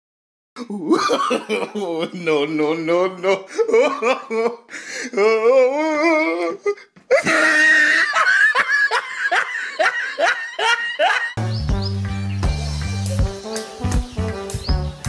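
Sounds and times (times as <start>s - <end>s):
loud wavering laughter: 0.7s - 2.5s, 7.1s - 11.4s
music with steady bass line: 11.4s - 15.0s.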